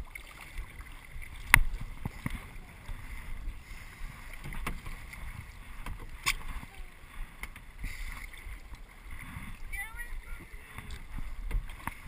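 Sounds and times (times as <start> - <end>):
paddles dipping in water: 0.0 - 12.0
water sloshing against hulls: 0.0 - 12.0.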